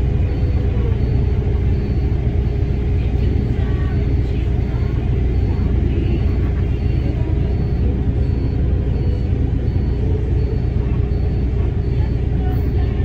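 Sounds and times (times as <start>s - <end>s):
vehicle engine idling: 0.0s - 13.0s.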